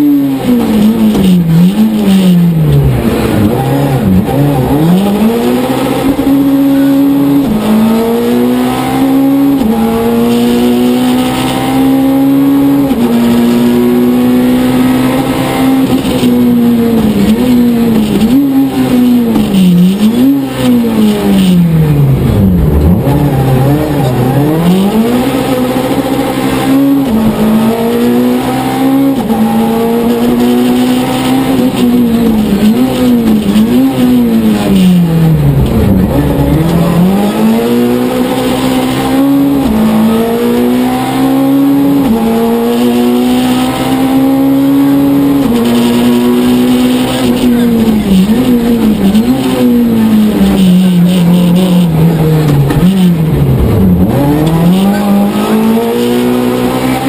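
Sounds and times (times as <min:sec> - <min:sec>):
rally car engine revving: 0:00.0 - 0:57.0.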